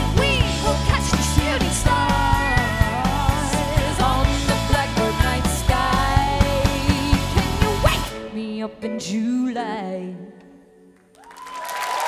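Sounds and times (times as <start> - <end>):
audience applauding and cheering: 11.1 - 12.0.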